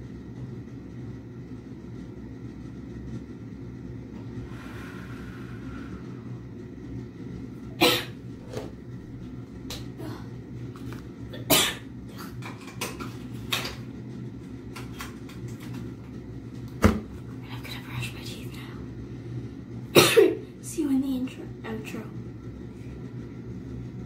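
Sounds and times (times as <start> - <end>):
steady low hum: 0.0 - 24.0
woman coughing: 7.8 - 8.2, 11.4 - 11.8, 20.0 - 20.4.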